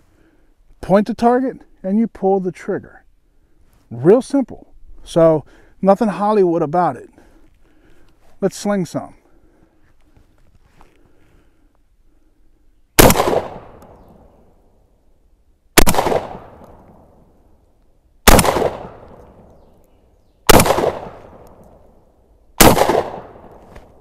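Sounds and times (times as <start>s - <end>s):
shotgun shots echoing: 13.0s - 14.0s, 15.8s - 17.1s, 18.2s - 19.5s, 20.5s - 21.6s, 22.6s - 23.7s.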